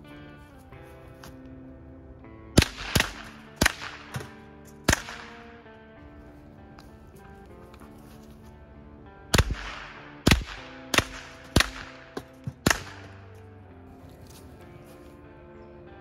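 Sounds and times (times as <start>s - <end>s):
background music: 0.0s - 16.0s
rifle shots: 2.6s - 5.6s, 9.3s - 13.3s.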